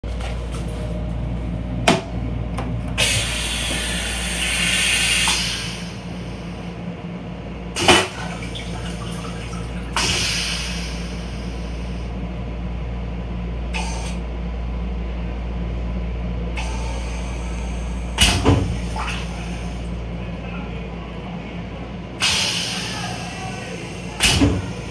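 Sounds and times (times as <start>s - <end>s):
railcar low hum: 0.0s - 24.9s
toilet flushing water rush: 2.9s - 6.7s, 7.8s - 12.0s, 16.6s - 20.0s.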